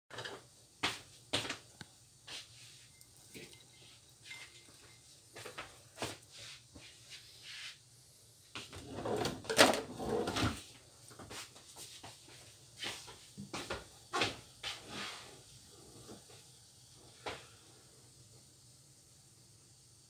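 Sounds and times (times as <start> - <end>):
rustling bean sprouts: 2.4 - 7.8.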